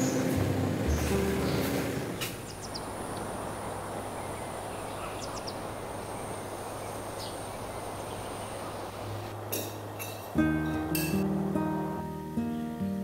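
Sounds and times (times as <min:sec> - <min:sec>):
background music: 0:00.0 - 0:02.2, 0:10.3 - 0:13.0
hiss over low hum: 0:00.0 - 0:13.0.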